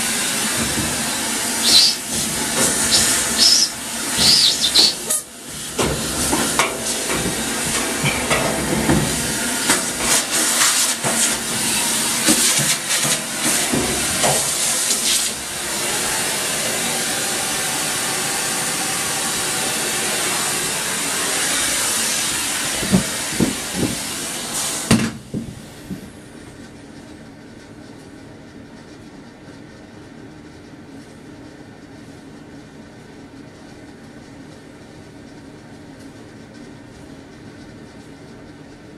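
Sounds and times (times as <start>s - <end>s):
vacuum cleaner running: 0.0s - 26.6s.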